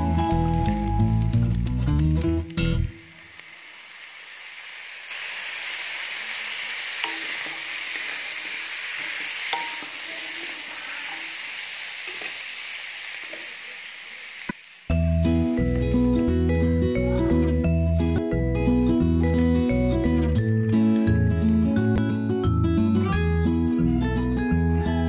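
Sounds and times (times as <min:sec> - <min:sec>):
chicken feet sizzling in a pan: 0:00.0 - 0:18.1.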